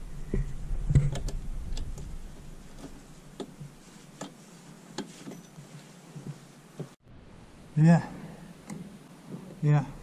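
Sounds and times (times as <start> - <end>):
low rumble: 0.0 - 3.3.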